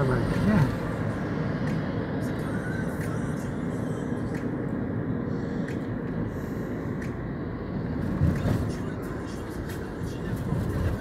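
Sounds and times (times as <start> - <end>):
car road and tyre noise: 0.0 - 11.0.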